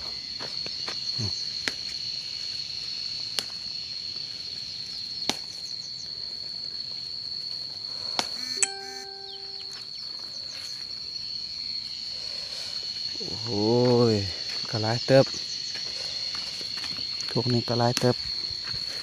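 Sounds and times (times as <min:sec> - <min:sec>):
high-pitched insect drone: 0:05.6 - 0:19.0.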